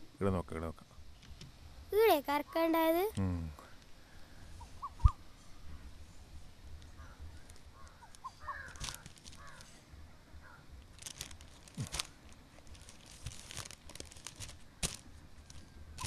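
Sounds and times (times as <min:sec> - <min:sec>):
dry twigs and leaves crackling: 0:06.7 - 0:09.9, 0:10.7 - 0:16.0
bird chirps: 0:06.9 - 0:08.8.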